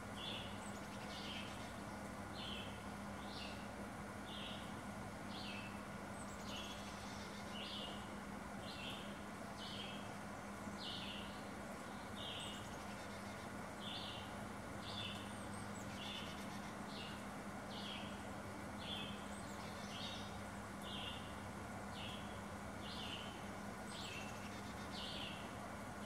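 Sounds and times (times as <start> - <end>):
steady low hum: 0.0 - 26.0
chickadees buzzy calls: 5.4 - 26.0.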